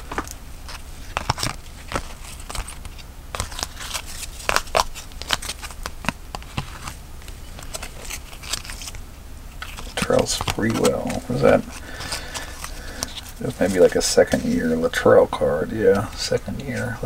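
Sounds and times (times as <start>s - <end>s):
trading cards clicking and snapping: 0.0s - 9.0s, 9.6s - 13.9s.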